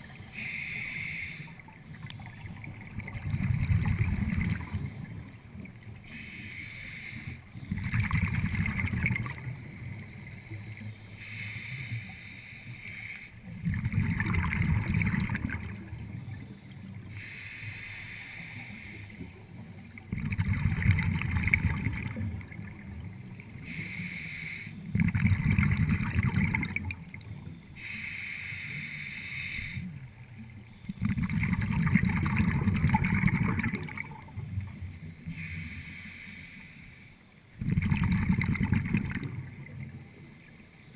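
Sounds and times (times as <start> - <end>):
regulator inhalation hiss: 0.2 - 1.7, 6.0 - 7.7, 9.6 - 13.5, 17.0 - 19.8, 23.3 - 24.9, 27.7 - 30.0, 35.0 - 37.4
exhaled bubbles rumbling: 1.7 - 6.0, 7.6 - 9.9, 13.5 - 17.1, 19.2 - 23.6, 24.9 - 27.6, 30.4 - 35.0, 37.6 - 40.2.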